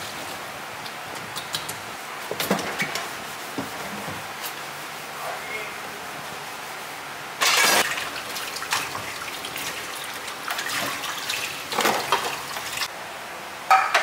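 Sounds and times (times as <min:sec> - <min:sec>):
dishes and utensils clinking: 0:07.4 - 0:07.9, 0:13.7 - 0:14.0
water rushing from tap: 0:07.8 - 0:12.9.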